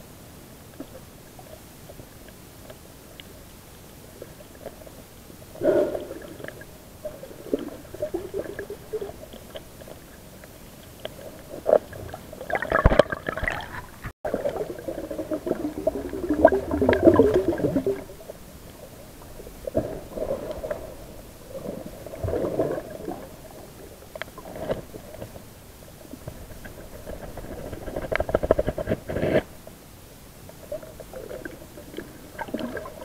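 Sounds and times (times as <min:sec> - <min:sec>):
low steady hiss: 0:00.0 - 0:33.0
underwater gurgling and bubbling: 0:04.2 - 0:25.4, 0:30.6 - 0:33.0.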